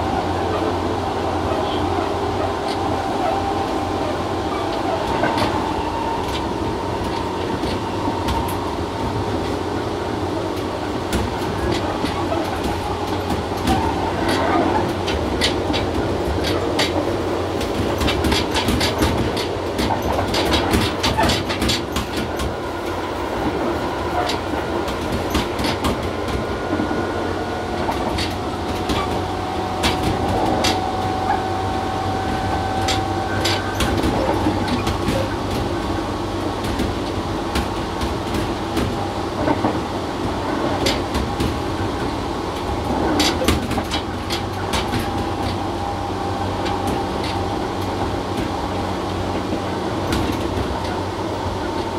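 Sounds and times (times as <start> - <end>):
train wheels rumbling: 0.0 - 51.9
wheels clicking over rail joints: 10.5 - 22.6, 27.8 - 39.8, 40.4 - 45.8, 46.5 - 51.9.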